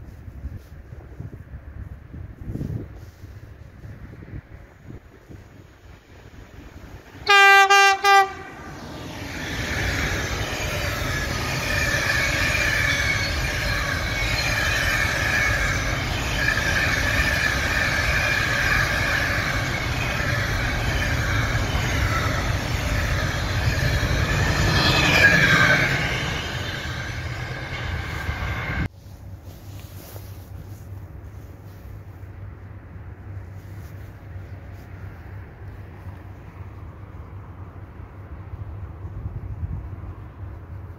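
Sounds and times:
train rumble and wheel noise: 0.0 - 40.9
locomotive horn blast: 7.2 - 8.7.

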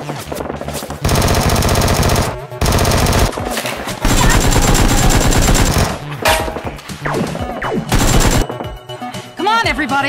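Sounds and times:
automatic gunfire bursts: 1.0 - 3.4, 4.0 - 6.0, 7.9 - 8.4.

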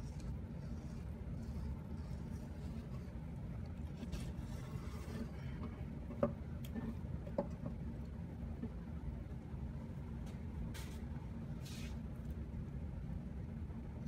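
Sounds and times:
knife scraping: 0.0 - 3.2, 3.8 - 5.6
steady low hum: 0.0 - 14.0.

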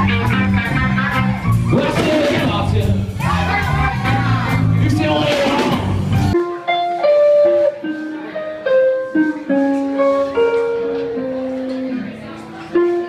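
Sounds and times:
slow blues guitar lead: 0.0 - 4.9, 5.5 - 13.0.

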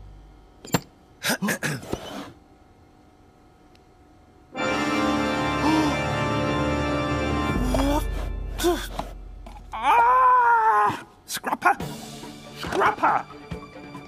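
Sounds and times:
sustained organ chord: 4.5 - 8.5.

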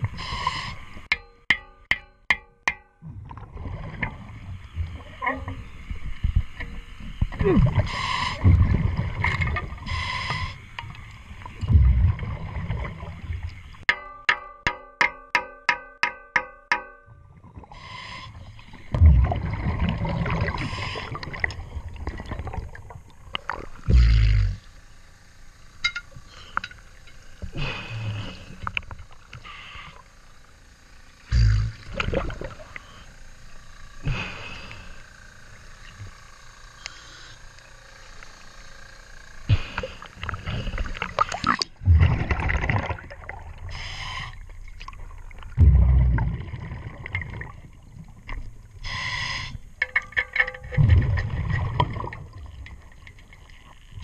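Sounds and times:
exhaled bubbles rumbling: 3.1 - 10.0, 10.9 - 13.8, 18.6 - 24.6, 31.4 - 32.8, 40.2 - 48.8, 50.6 - 54.0
sloshing water: 3.1 - 13.9, 18.5 - 23.9, 31.8 - 32.9, 40.0 - 48.8, 49.8 - 54.0
diver breathing through regulator: 7.8 - 8.5, 9.8 - 10.7, 20.5 - 21.4, 34.0 - 35.1, 39.5 - 41.5, 43.7 - 44.4, 48.8 - 49.6.

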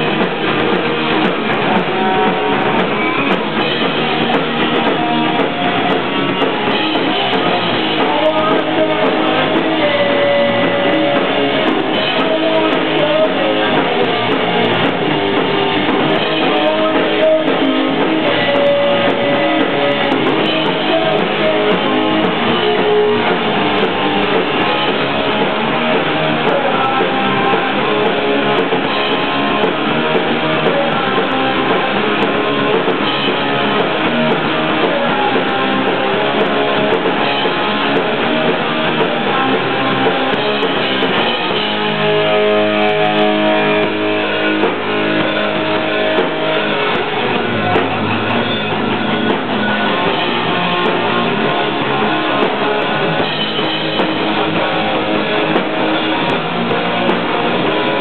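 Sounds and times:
drum kit: 0.0 - 58.0
electric guitar chords: 0.0 - 58.0.

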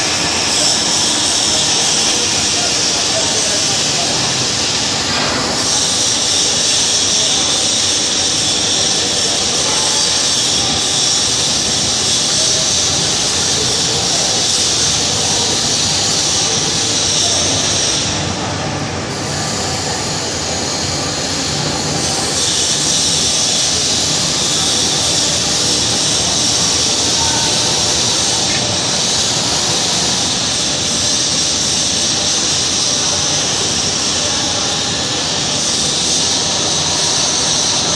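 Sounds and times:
paddle dryer machine hissing: 0.0 - 37.9.

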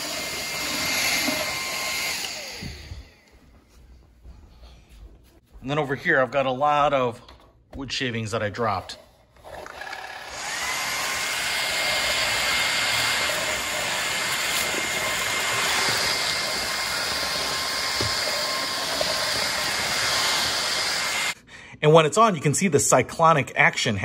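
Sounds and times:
vacuum cleaner motor whine: 0.0 - 3.4, 9.5 - 21.4.

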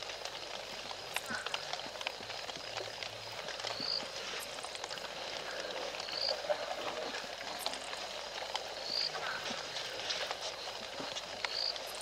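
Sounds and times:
chorus of night creatures: 0.0 - 12.0.

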